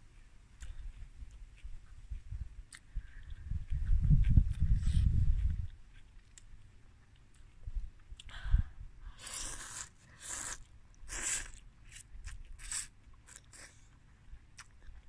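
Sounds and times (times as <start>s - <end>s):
person slurping noodles: 9.2s - 11.6s, 12.6s - 13.8s.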